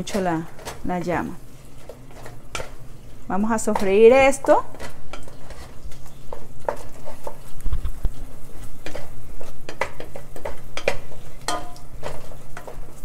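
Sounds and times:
utensil stirring in a pot: 0.0s - 13.0s.

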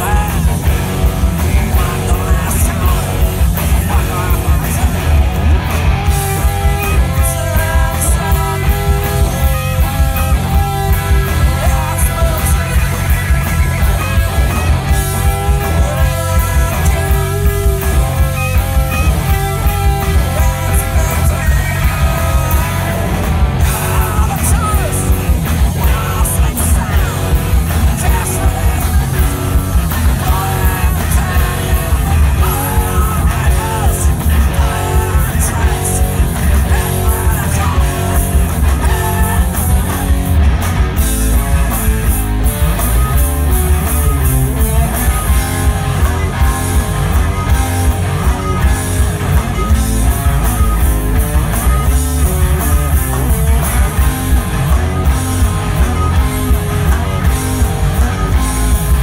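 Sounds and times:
bass guitar: 0.0s - 59.0s
drum kit: 0.0s - 59.0s
electric guitars: 0.0s - 59.0s.

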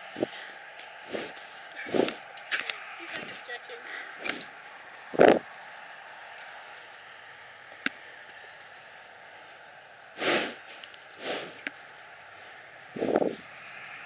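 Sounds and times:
pony breathy whooshes: 1.1s - 2.2s, 11.2s - 11.6s, 13.0s - 13.4s.

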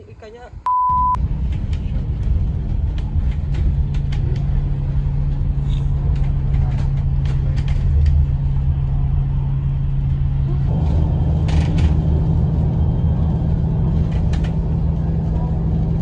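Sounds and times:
bus engine and road rumble: 0.0s - 16.0s
light clicks and rattles: 1.4s - 9.0s.

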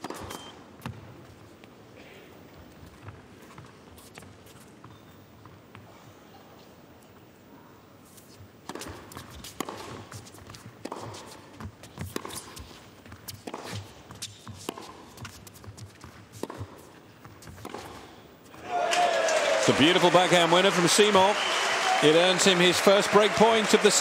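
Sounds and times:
shoes scuffing on court: 8.1s - 18.1s
racket hitting tennis ball: 8.6s - 18.2s.

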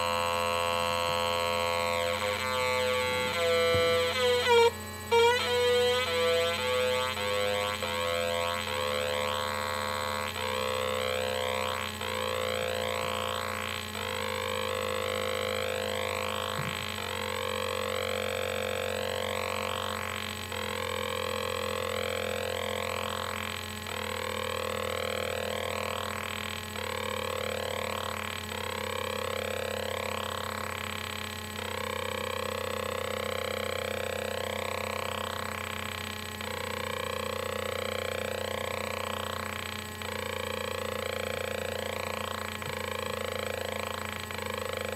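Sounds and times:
harsh buzzing square-wave tone: 0.0s - 44.9s.

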